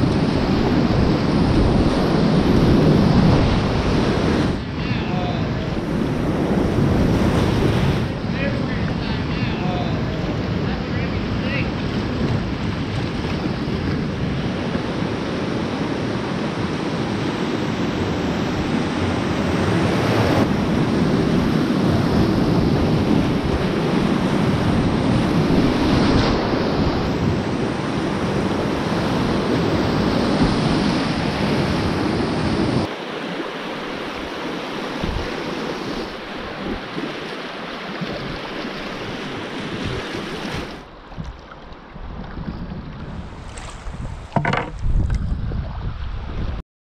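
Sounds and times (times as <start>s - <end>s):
wind buffeting microphone: 0.0s - 32.9s, 34.0s - 46.6s
whitewater rushing: 17.8s - 41.8s
calm water flowing: 26.3s - 46.6s
paddle strokes splashing: 32.9s - 45.8s.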